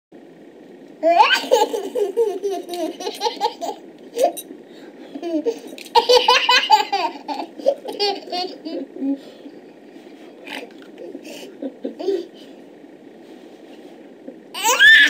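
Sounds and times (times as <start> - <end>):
baby laughing: 1.0 - 4.4, 5.2 - 9.2, 10.6 - 12.4, 14.6 - 15.0.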